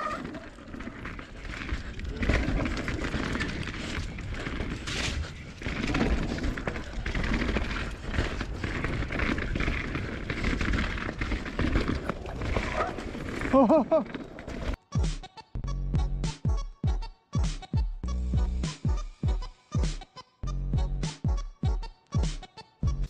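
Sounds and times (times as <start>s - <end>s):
bike chain and frame rattling: 0.0s - 14.8s
tyres rumbling over dirt: 0.0s - 14.8s.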